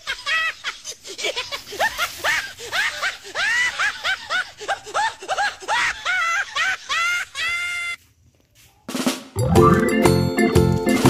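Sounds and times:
high-pitched laughter: 0.0 - 8.0.

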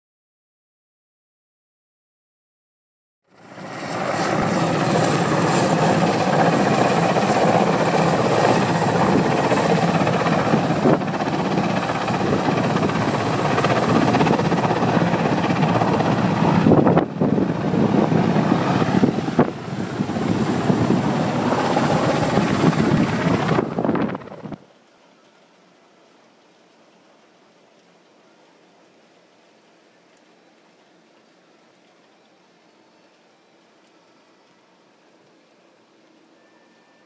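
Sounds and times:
helicopter flying low: 3.3 - 24.7.

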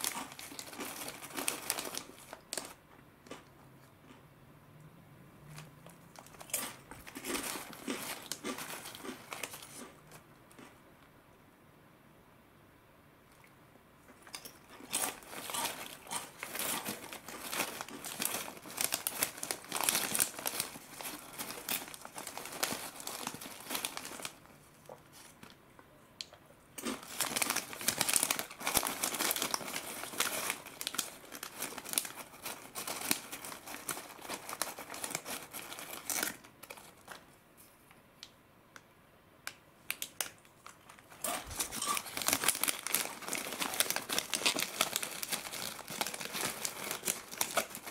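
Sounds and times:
foil snack bag crinkling: 0.0 - 2.8, 5.8 - 10.2, 14.2 - 25.6, 26.8 - 37.2, 39.9 - 47.9.

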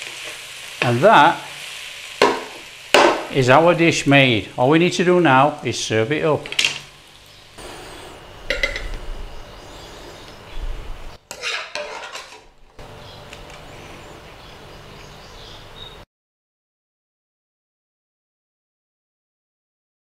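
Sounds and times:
metal spoon scraping a wok: 7.7 - 9.0, 11.3 - 12.6.

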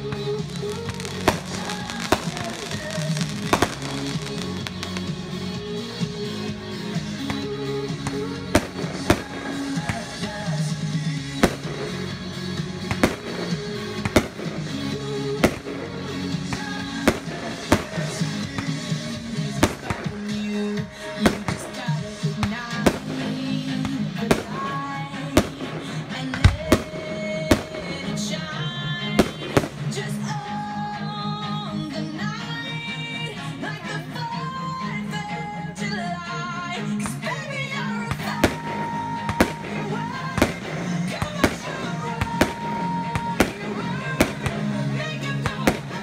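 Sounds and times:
background music: 0.0 - 46.0
fireworks bangs: 0.1 - 5.3, 7.2 - 12.2, 12.8 - 30.1, 38.1 - 46.0.

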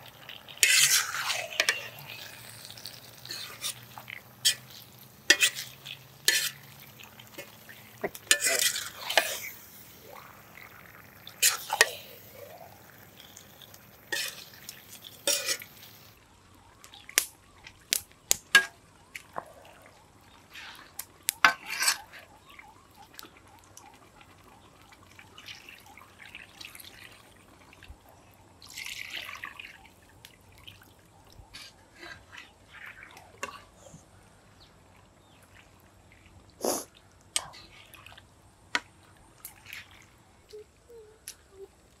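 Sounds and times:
water sloshing and dripping: 0.0 - 42.0
spatula scraping pan: 0.5 - 9.6, 11.4 - 12.0, 14.1 - 15.8, 21.4 - 22.0.

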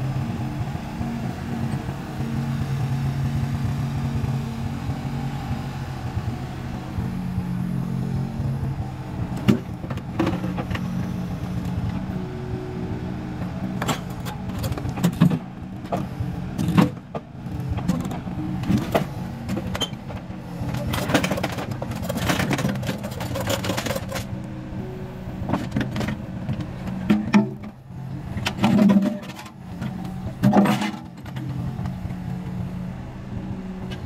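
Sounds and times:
diesel engine running: 0.0 - 34.0
metal clanks and knocks: 25.5 - 27.8.

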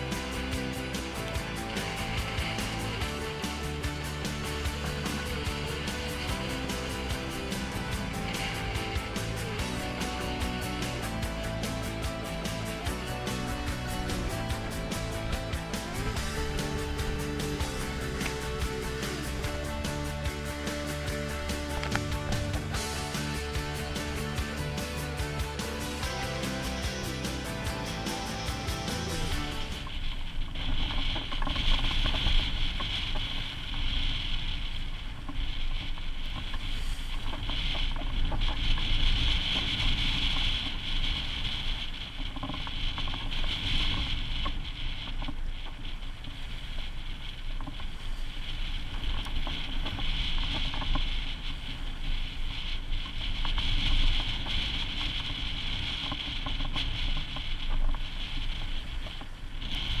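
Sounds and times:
wind buffeting microphone: 29.3 - 60.0
hiss of spray and wash: 36.6 - 42.1.

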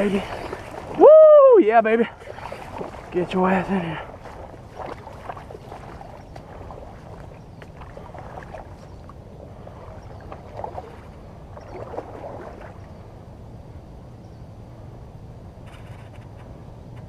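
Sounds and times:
small water splashes: 0.0 - 13.2
low steady rumble: 0.0 - 17.0
river water lapping and trickling: 0.0 - 17.0.

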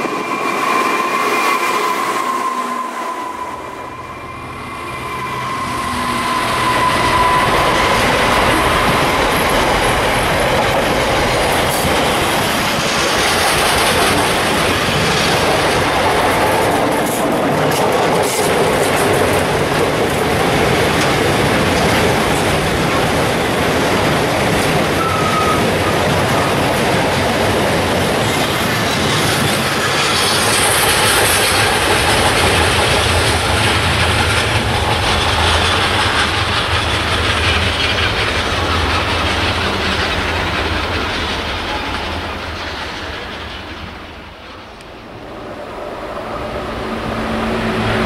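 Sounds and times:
wheel squeal: 0.0 - 10.3, 24.9 - 26.7
freight wagon wheels rumbling: 5.8 - 43.6.

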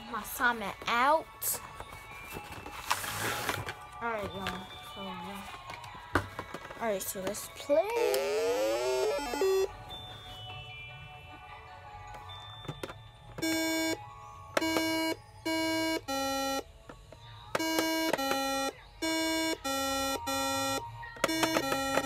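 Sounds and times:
electronic game beeps: 8.5 - 9.8.

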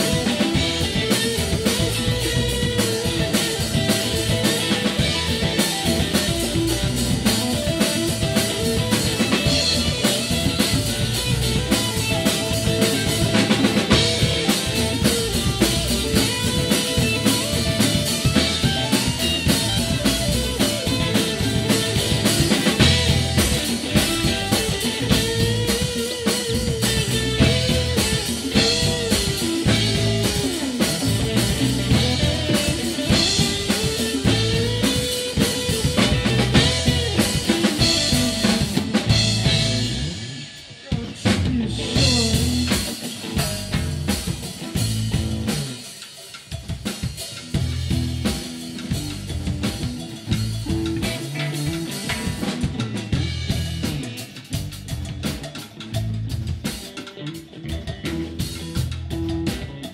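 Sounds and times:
lead guitar bending notes: 0.0 - 45.8
live rock band playing: 0.0 - 59.9.

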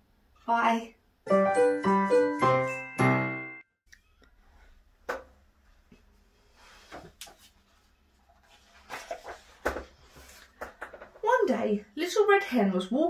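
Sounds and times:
book handling knocks and rustles: 8.5 - 11.2.

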